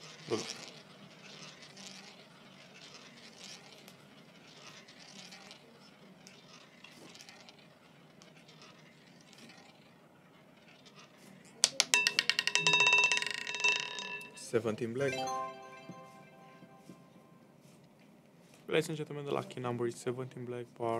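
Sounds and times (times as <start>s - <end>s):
roulette ball rolling: 0.0s - 17.4s
roulette ball clattering: 0.2s - 5.6s, 10.5s - 14.5s
ringing tones: 12.0s - 17.4s.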